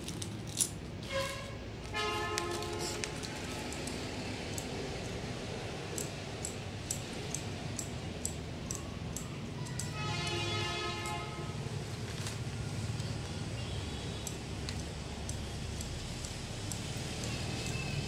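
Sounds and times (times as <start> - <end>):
horn sounding: 1.0 - 3.0, 9.9 - 11.6
sharp clicks: 5.9 - 10.0.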